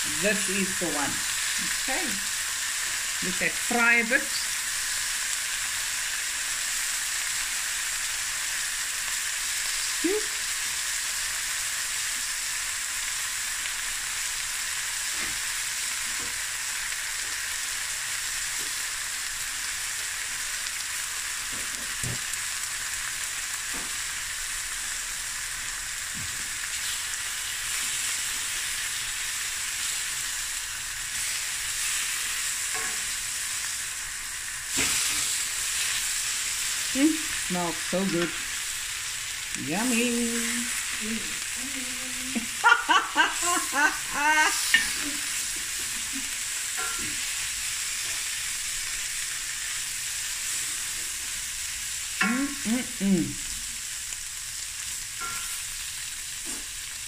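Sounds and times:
meat sizzling in frying pan: 0:00.0 - 0:57.0
spatula moving meat in pan: 0:43.3 - 0:49.4.

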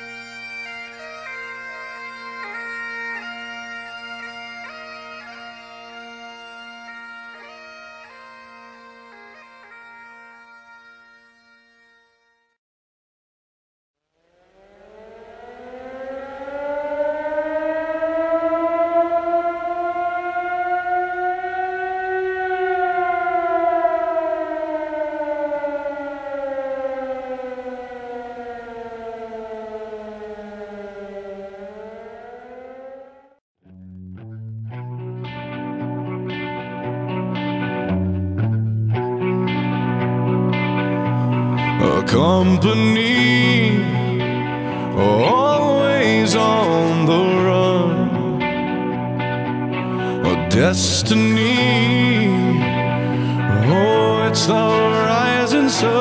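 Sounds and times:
fire siren wailing: 0:00.0 - 0:11.6, 0:14.1 - 0:33.4, 0:35.0 - 0:56.0
bagpipe playing slow tune: 0:00.0 - 0:12.6, 0:16.5 - 0:26.3, 0:35.0 - 0:56.0.

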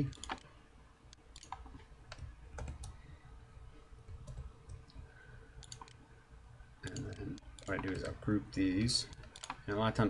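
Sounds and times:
computer keyboard and mouse clicks: 0:00.0 - 0:00.5, 0:01.1 - 0:03.0, 0:04.1 - 0:05.0, 0:05.6 - 0:06.0, 0:06.8 - 0:08.2, 0:09.1 - 0:09.6
low room hum: 0:00.0 - 0:10.0.

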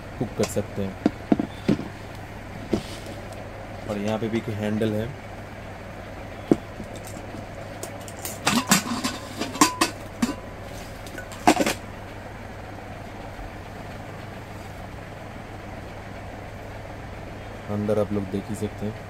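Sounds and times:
steady low hum: 0:00.0 - 0:19.0
lid clattering down: 0:08.2 - 0:10.4
lid clinking against pot rim: 0:08.2 - 0:10.4.

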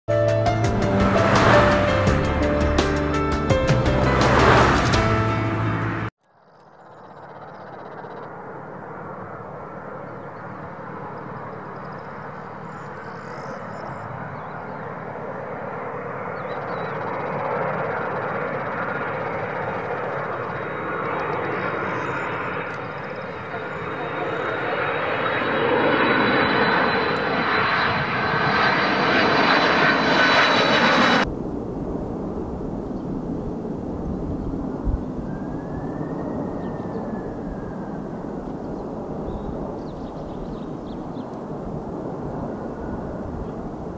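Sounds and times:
jet engine rush: 0:00.5 - 0:06.1, 0:08.3 - 0:43.9.

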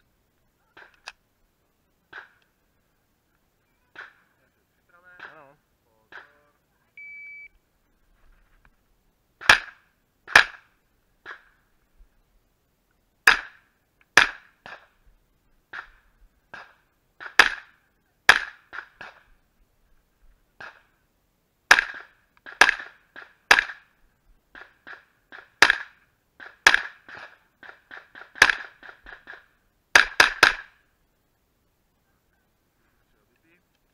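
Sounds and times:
gunshots: 0:03.9 - 0:04.3, 0:09.4 - 0:11.5, 0:13.2 - 0:14.9, 0:15.7 - 0:19.3, 0:21.7 - 0:23.9, 0:24.5 - 0:30.8.

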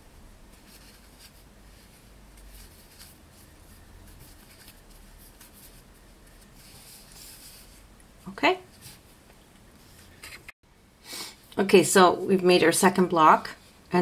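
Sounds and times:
low room hum: 0:00.0 - 0:14.0
yarn rustling with crochet hook: 0:00.4 - 0:09.2.

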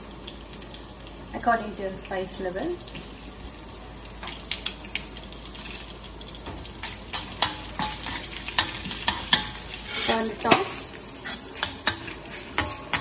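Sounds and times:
spices sizzling in hot oil: 0:00.0 - 0:13.0
metal spoon clicking against pan: 0:11.6 - 0:13.0.

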